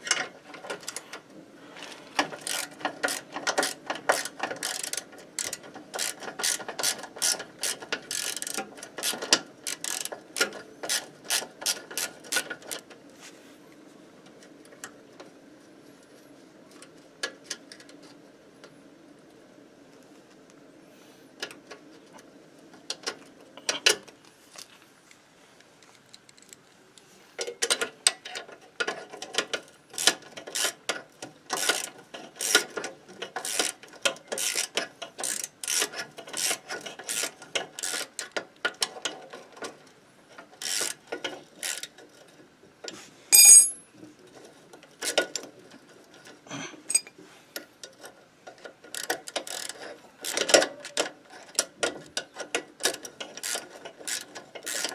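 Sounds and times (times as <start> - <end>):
ratchet wrench clicking: 2.4 - 12.4, 31.6 - 32.7, 33.4 - 33.8, 34.4 - 38.3, 40.6 - 41.0, 41.6 - 41.9, 48.9 - 50.5, 52.8 - 54.9
bright metallic ring: 43.3 - 43.9.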